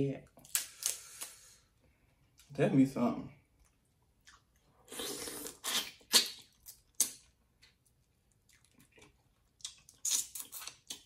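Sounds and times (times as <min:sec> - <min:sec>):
mouth slurping: 0:04.9 - 0:06.4
wet mouth smacks: 0:05.0 - 0:07.2.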